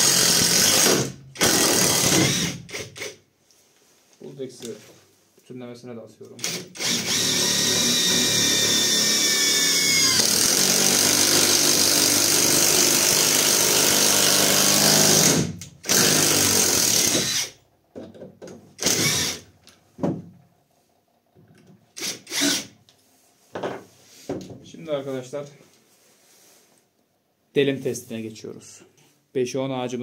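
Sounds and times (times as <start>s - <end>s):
impact wrench driving screw: 0.0s - 3.2s, 6.4s - 17.6s, 18.8s - 19.5s, 22.0s - 22.8s.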